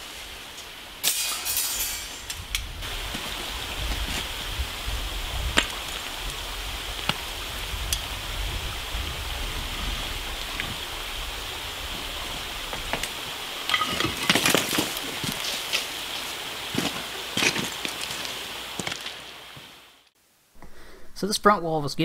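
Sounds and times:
steady background hiss: 0:00.0 - 0:22.0
concrete blocks knocking: 0:13.7 - 0:15.0
blocks crashing onto pile: 0:13.7 - 0:15.6.

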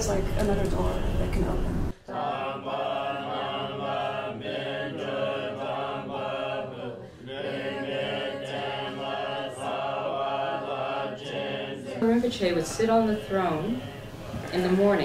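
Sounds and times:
monks chanting in unison: 0:02.0 - 0:12.0.

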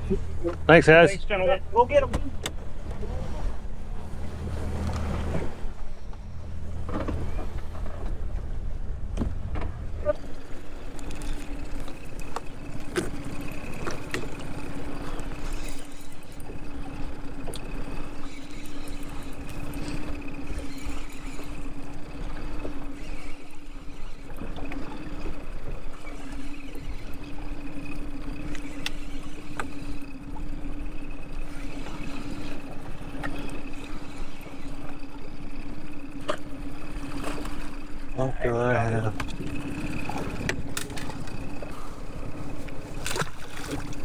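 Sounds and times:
small waves slapping boat hull: 0:00.0 - 0:44.0
steady motor hum: 0:00.0 - 0:44.0
sharp clicks of fishing gear: 0:24.4 - 0:38.0, 0:39.2 - 0:41.8.

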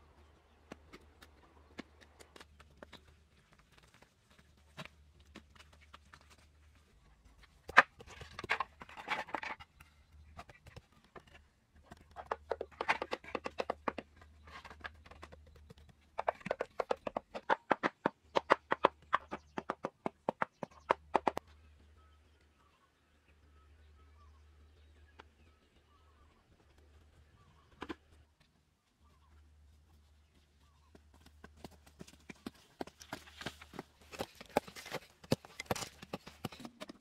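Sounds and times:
knocks and taps on bamboo: 0:07.7 - 0:21.4.

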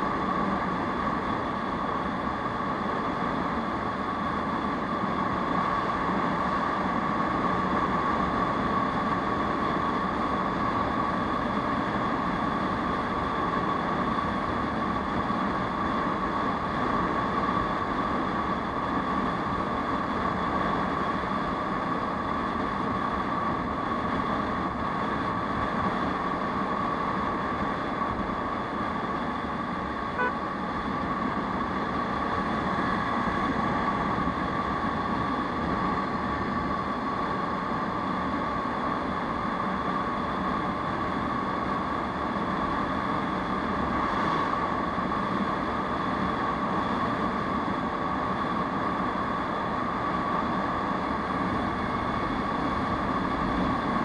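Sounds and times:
wind and road noise: 0:00.0 - 0:54.0
brief beep: 0:30.2 - 0:30.4.

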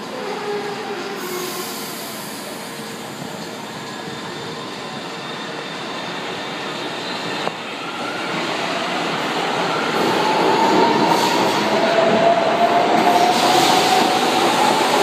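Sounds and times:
train wheels rumbling on rails: 0:00.1 - 0:15.0.

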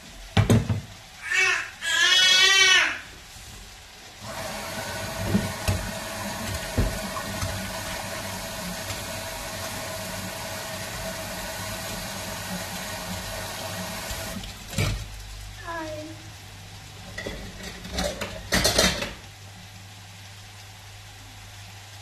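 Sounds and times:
water running into sink: 0:04.2 - 0:15.3, 0:17.0 - 0:19.2.

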